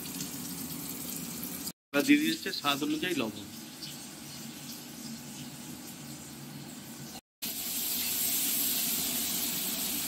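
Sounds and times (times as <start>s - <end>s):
food sizzling in hot oil: 3.5s - 10.0s.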